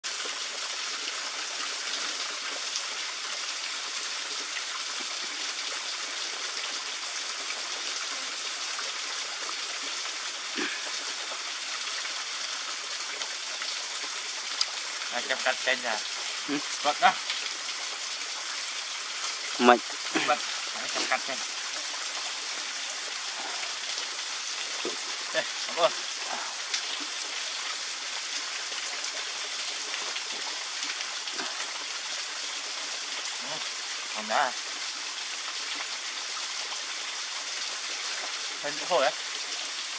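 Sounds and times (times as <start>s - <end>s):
small waterfall rushing: 0.0s - 39.9s.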